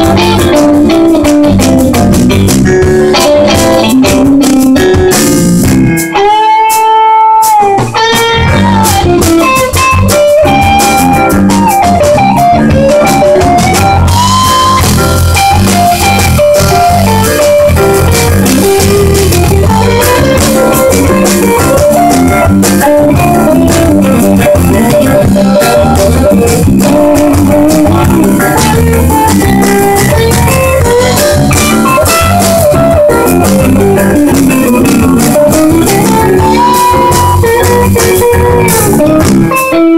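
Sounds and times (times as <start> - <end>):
bass guitar: 0.0 - 39.9
drum kit: 0.0 - 39.9
electric guitar lead line: 0.0 - 39.9.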